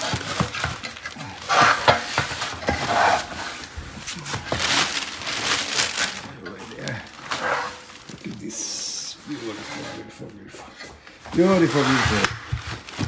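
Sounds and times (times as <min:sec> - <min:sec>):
plastic packaging crinkling: 0:00.0 - 0:09.4.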